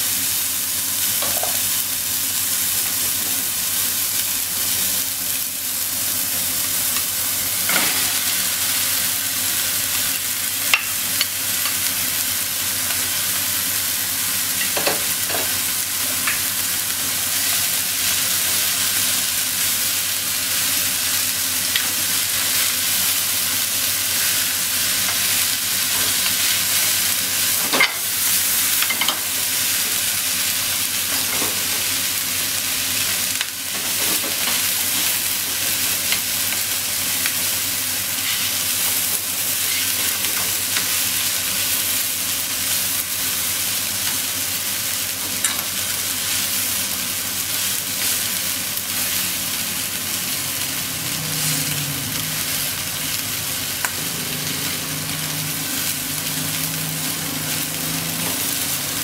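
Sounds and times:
food sizzling in a pan: 0.0 - 59.0.

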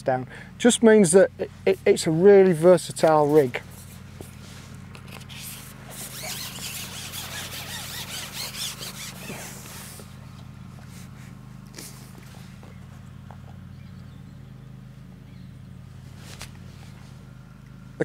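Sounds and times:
steady low hum: 0.0 - 18.0
small birds chirping: 5.2 - 18.0.

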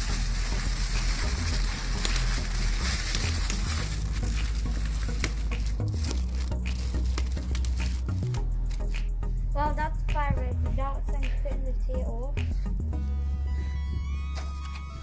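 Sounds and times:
aluminium foil crinkling: 0.0 - 8.9.

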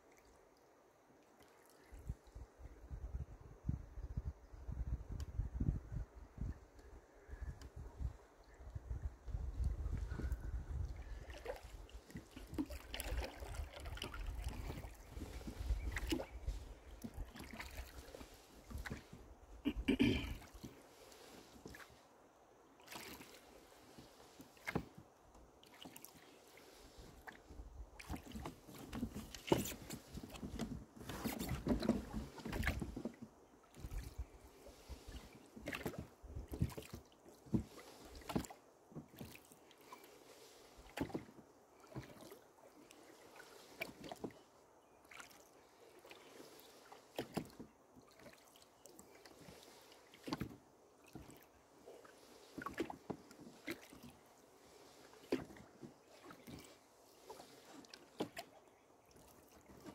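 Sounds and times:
oar blades splashing: 11.0 - 22.0, 22.8 - 25.0, 25.6 - 59.9
oars knocking in oarlocks: 28.0 - 34.0.

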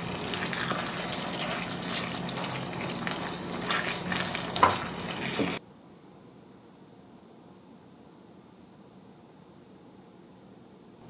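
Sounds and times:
spatula stirring and scraping: 0.0 - 5.6
stew sizzling in a frying pan: 0.0 - 5.6.

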